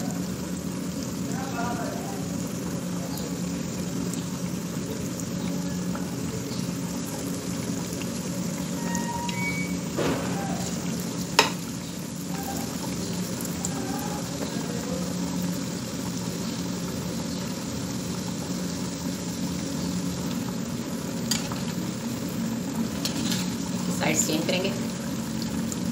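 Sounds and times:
oil sizzling and bubbling: 0.0s - 25.9s.

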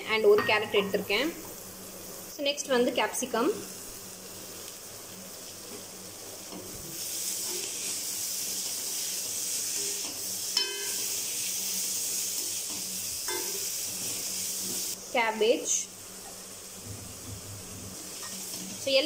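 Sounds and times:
vegetables sizzling in oil: 0.0s - 19.0s
spatula clinking on pan: 10.6s - 11.1s, 13.3s - 13.6s.

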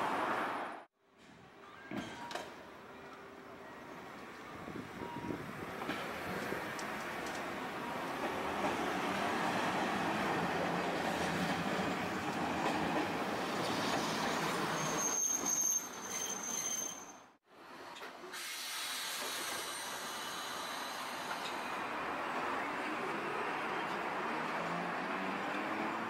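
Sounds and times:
streetcar wheels rumbling: 3.4s - 16.4s
high wheel squeal: 14.4s - 17.3s.

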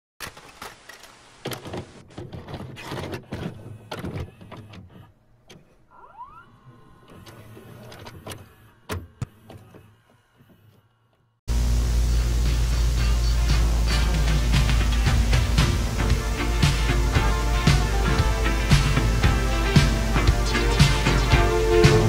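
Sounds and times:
tape mechanism clunks and clicks: 0.2s - 5.7s
low hum: 11.5s - 22.0s
short rising whine: 11.5s - 22.0s.

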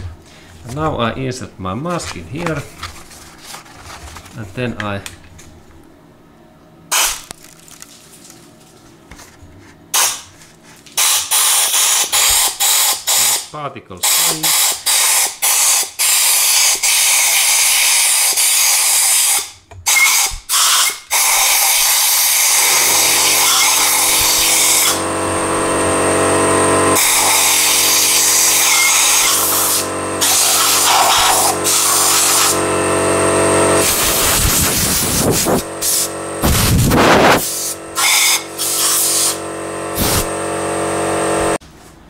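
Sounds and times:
compressed air blow gun hissing: 20.5s - 26.0s, 26.9s - 32.6s, 33.8s - 40.3s
steady low hum: 22.4s - 41.6s.

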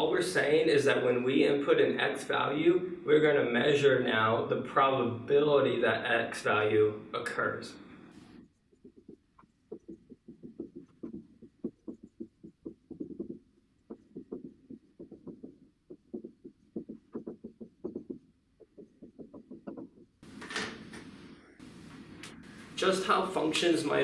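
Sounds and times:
marker writing on whiteboard: 8.2s - 20.3s.

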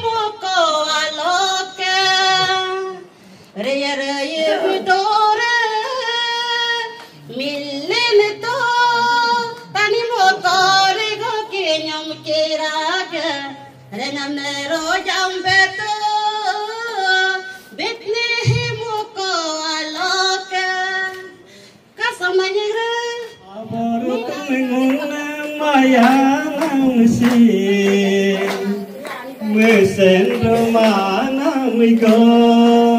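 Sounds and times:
woman singing a hymn: 0.0s - 21.4s, 22.0s - 32.9s
singer breathing: 3.1s - 3.6s, 21.4s - 22.0s.

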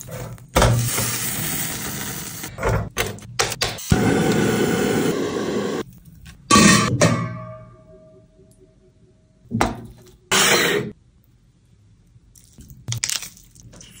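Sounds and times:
wet squish: 12.3s - 14.0s.

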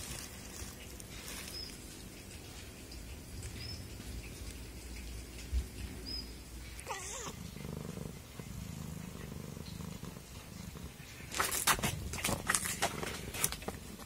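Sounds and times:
cat purring: 0.1s - 14.0s
cat trill: 6.8s - 7.5s.

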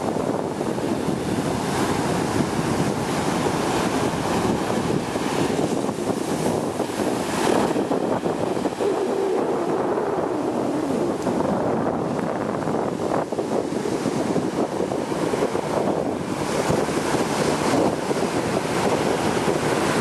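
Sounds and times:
surf breaking on beach: 0.0s - 20.0s
wind on microphone: 0.0s - 20.0s.

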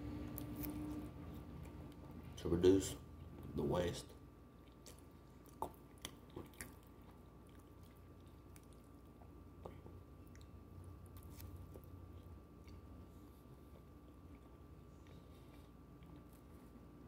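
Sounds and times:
faint steady hum: 0.0s - 17.0s
faint chewing: 4.5s - 17.0s.

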